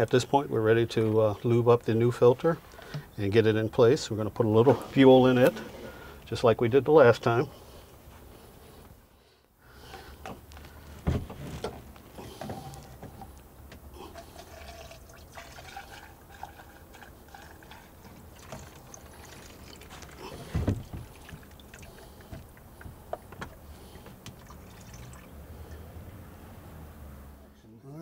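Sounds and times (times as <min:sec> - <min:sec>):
thump: 0:11.0 - 0:11.4, 0:20.5 - 0:21.0
fuel pouring through funnel: 0:14.0 - 0:26.1.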